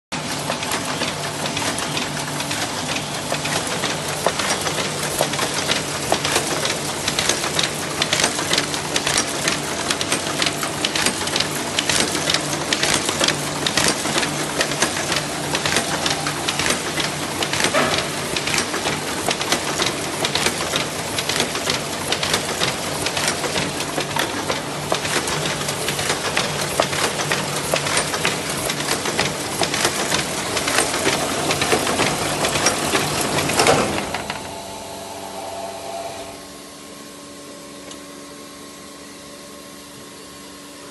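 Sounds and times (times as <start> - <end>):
sewing machine clatter: 0.2 - 34.2
motor hum: 30.6 - 37.0.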